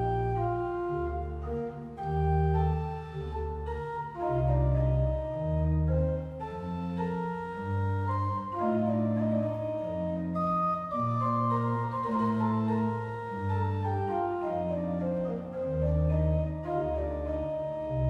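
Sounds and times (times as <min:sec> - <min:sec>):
church pipe organ chords: 0:00.0 - 0:18.0.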